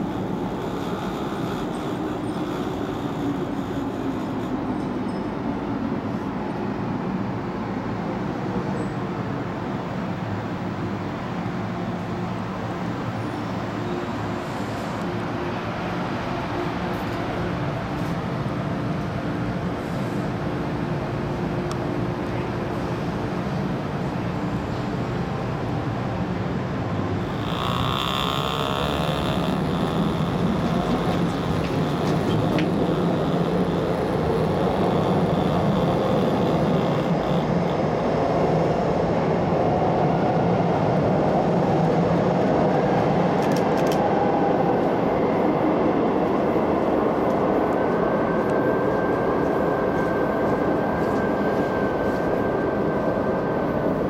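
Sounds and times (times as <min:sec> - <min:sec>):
high wheel squeal: 0:00.0 - 0:05.3, 0:27.2 - 0:37.8
train wheels and motors rumbling: 0:00.0 - 0:39.8.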